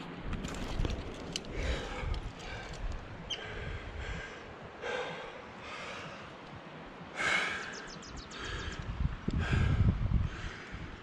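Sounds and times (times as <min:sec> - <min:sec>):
person breathing hard: 0:01.5 - 0:06.4, 0:07.1 - 0:11.0.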